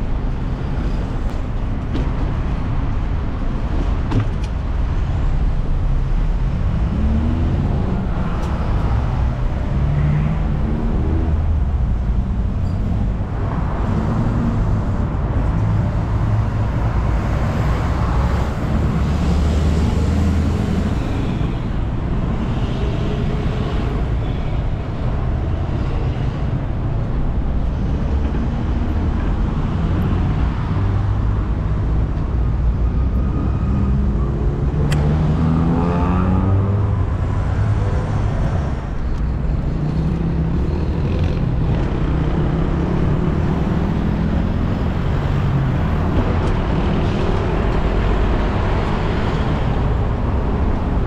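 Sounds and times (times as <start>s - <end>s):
road traffic: 0.0s - 51.0s
vehicle accelerating away: 33.6s - 37.0s.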